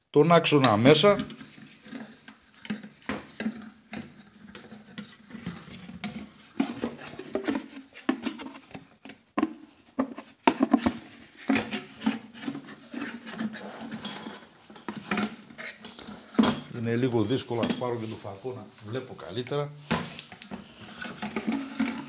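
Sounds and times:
metal parts clinking and knocking: 0:13.9 - 0:16.8.

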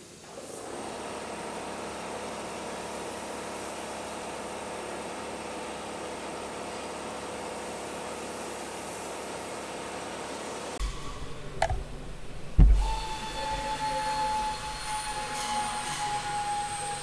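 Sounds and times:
steady machine hum: 0:10.8 - 0:15.2.

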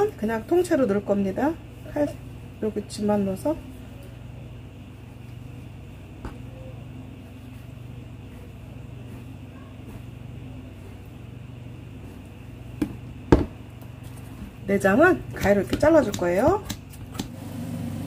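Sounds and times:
steady low hum: 0:00.0 - 0:18.0
knife knocking on cutting board: 0:12.8 - 0:13.6.

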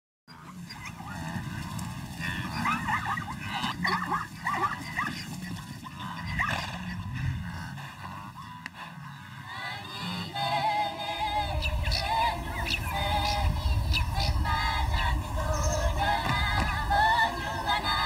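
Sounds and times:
high yipping animal calls: 0:00.3 - 0:07.1
low background noise: 0:00.3 - 0:18.0.

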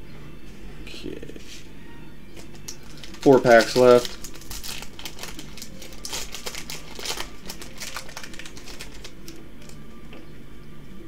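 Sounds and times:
foil wrapper crinkling: 0:02.4 - 0:09.8.

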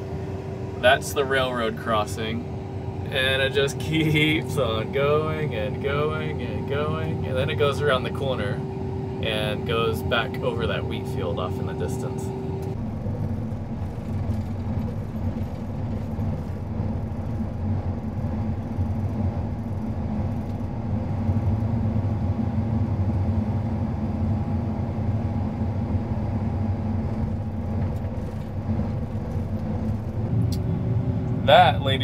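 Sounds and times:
combine harvester engine drone: 0:00.0 - 0:32.0
faint steady whine: 0:00.0 - 0:32.0.

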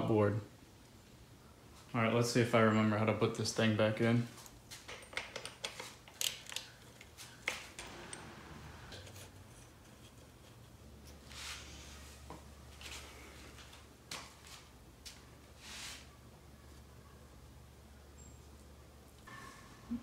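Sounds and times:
metal parts clicking and rubbing: 0:04.8 - 0:08.2.

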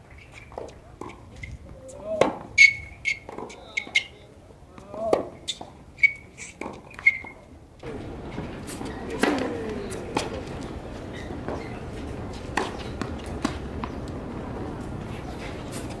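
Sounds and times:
tennis balls bouncing on court: 0:00.4 - 0:04.1, 0:06.6 - 0:16.0
steady background hum: 0:07.6 - 0:16.0
tennis racket hitting ball: 0:08.6 - 0:11.7, 0:12.3 - 0:14.0.

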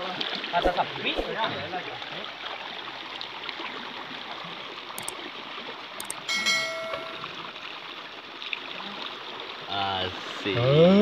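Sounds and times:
shallow water sloshing and trickling: 0:00.0 - 0:06.0
clicks: 0:06.0 - 0:07.2
bright bell chime: 0:06.2 - 0:07.4.

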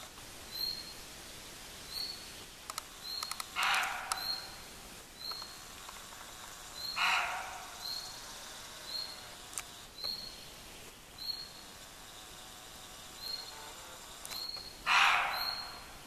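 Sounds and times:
deer barking: 0:03.6 - 0:04.5, 0:06.8 - 0:08.1, 0:14.8 - 0:16.0.

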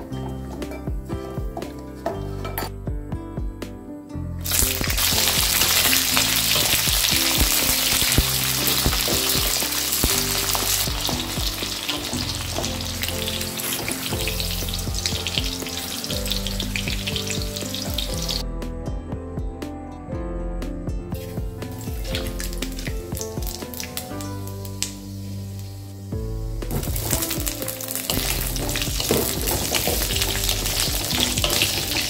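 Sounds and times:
beans sizzling in hot oil: 0:04.4 - 0:18.4, 0:21.7 - 0:32.0
wooden spatula stirring in wok: 0:26.7 - 0:32.0.

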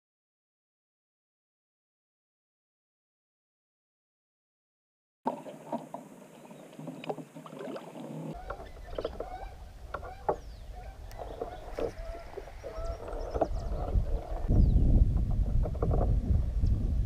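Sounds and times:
wind rumbling on microphone: 0:08.2 - 0:17.0.

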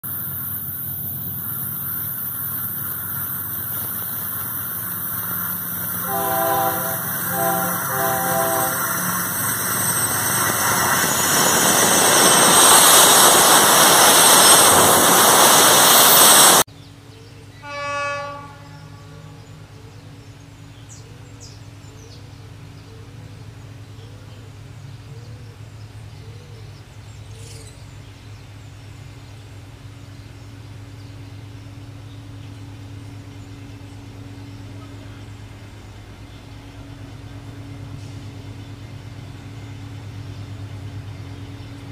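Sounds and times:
train rumble: 0:00.0 - 0:27.2, 0:27.8 - 0:41.9
distant locomotive engine hum: 0:00.0 - 0:41.9
locomotive horn blasts: 0:05.9 - 0:09.7, 0:17.6 - 0:19.6.

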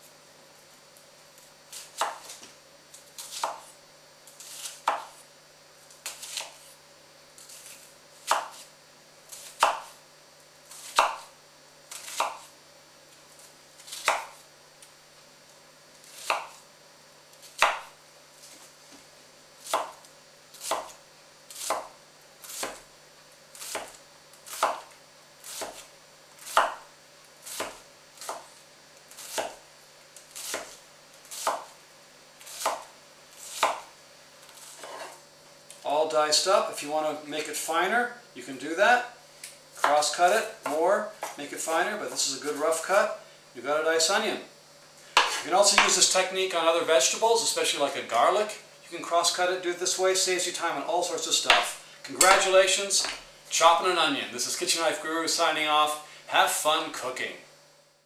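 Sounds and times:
knife chopping on wooden board: 0:01.8 - 0:02.3, 0:03.2 - 0:03.7, 0:04.4 - 0:05.2, 0:06.0 - 0:06.7, 0:07.4 - 0:08.7, 0:09.4 - 0:10.0, 0:10.8 - 0:11.3, 0:11.9 - 0:12.5, 0:13.9 - 0:14.4, 0:16.2 - 0:16.6, 0:17.5 - 0:17.9, 0:19.6 - 0:20.0, 0:20.6 - 0:21.0, 0:21.6 - 0:21.9, 0:22.5 - 0:22.8, 0:23.6 - 0:26.9, 0:27.5 - 0:28.5, 0:29.2 - 0:29.6, 0:30.4 - 0:31.7, 0:32.5 - 0:33.9, 0:34.6 - 0:35.2, 0:45.2 - 0:46.0, 0:51.5 - 0:53.3.

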